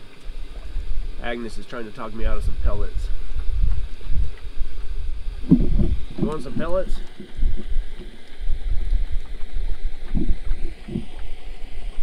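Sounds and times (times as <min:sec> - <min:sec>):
wind buffeting microphone: 0:00.4 - 0:12.0
soft low thuds: 0:02.5 - 0:12.0.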